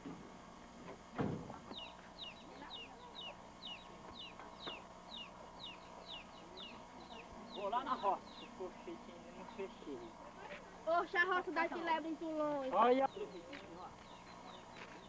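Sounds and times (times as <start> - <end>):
thump: 1.1 - 1.6
bird peeping: 1.7 - 10.2, 13.0 - 15.0.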